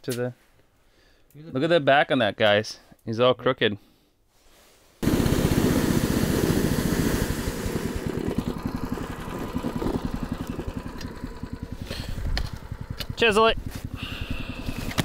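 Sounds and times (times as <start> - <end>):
small engine running: 5.0 - 15.0.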